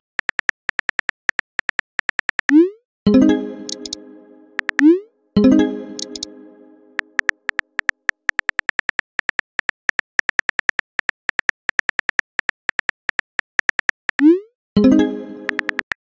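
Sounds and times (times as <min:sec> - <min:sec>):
phone keyboard clicks: 0:03.7 - 0:04.0, 0:04.6 - 0:04.8, 0:06.0 - 0:06.3, 0:07.2 - 0:14.1.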